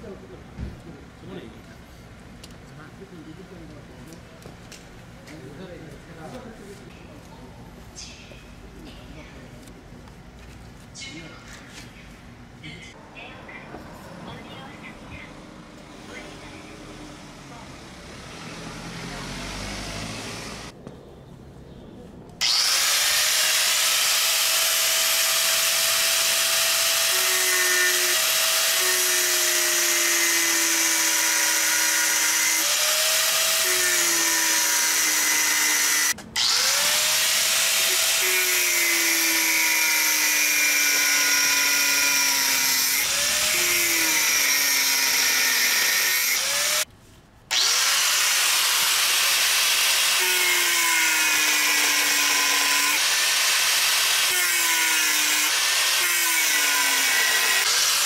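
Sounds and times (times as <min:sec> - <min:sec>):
angle grinder cutting steel: 0:16.1 - 0:20.8, 0:22.4 - 0:46.9, 0:47.5 - 0:58.0.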